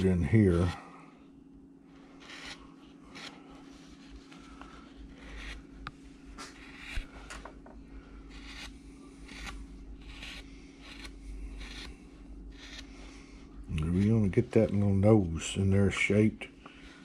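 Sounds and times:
gouge scraping wood: 2.2 - 5.7, 6.4 - 7.1, 8.3 - 14.8.

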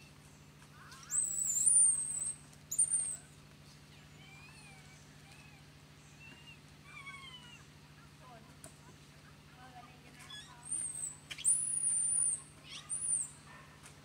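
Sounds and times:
faint chirping calls: 0.0 - 8.2, 10.2 - 13.9
baby monkey squealing: 1.1 - 3.2, 10.3 - 13.4.

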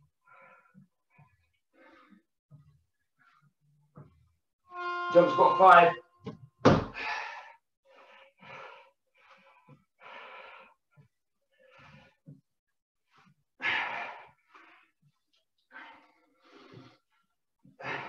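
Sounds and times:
man breathing heavily: 0.1 - 2.4, 6.9 - 12.3, 13.6 - 17.1
feet landing thud: 6.6 - 7.0.

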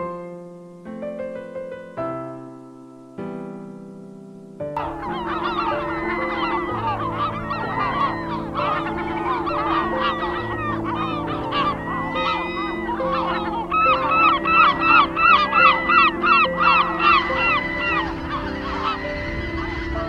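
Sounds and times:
flock of birds calling: 4.8 - 20.0.

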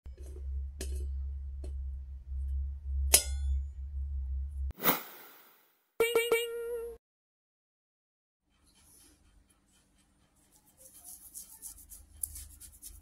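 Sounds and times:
steady low hum: 0.1 - 4.7
whoosh: 4.8 - 5.6.

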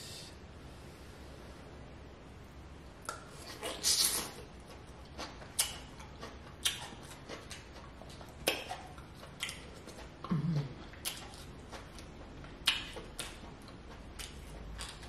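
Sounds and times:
wet sucking slurp: 3.4 - 4.4
chewing and shell clicks: 5.2 - 10.0, 10.9 - 15.0.

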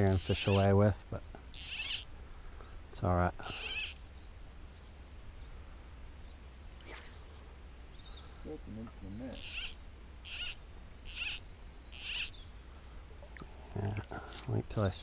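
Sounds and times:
cicadas shrilling: 0.0 - 15.0
short hissing bursts: 3.4 - 4.0, 9.2 - 13.0.

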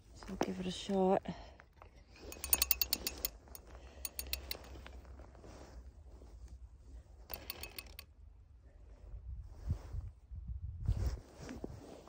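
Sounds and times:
fishing gear clicking: 2.2 - 5.0, 7.3 - 8.1
low wind rumble: 8.6 - 11.3.

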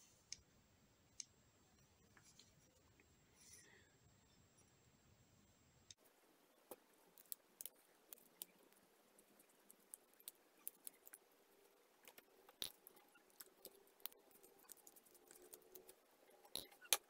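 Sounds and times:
small clicks and taps: 12.0 - 17.0.

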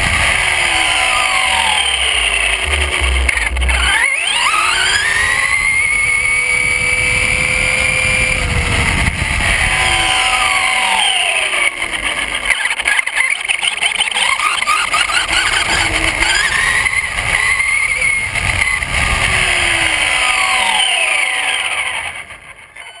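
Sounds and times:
tyre and wind noise: 0.0 - 11.0, 14.8 - 20.2
electric motor whining: 0.0 - 23.0.

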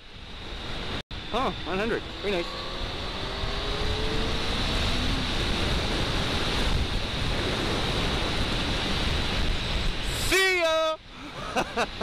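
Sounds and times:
wind and road noise: 0.0 - 12.0
motorcycle engine revving: 1.4 - 9.3.

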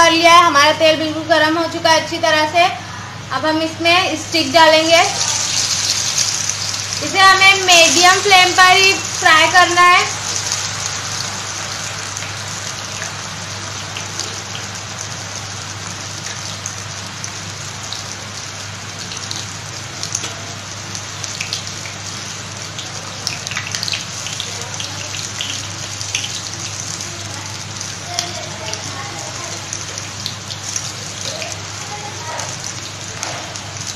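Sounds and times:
chicken deep-frying in oil: 3.8 - 33.9
oil crackles and pops: 5.0 - 7.1, 10.0 - 33.9.

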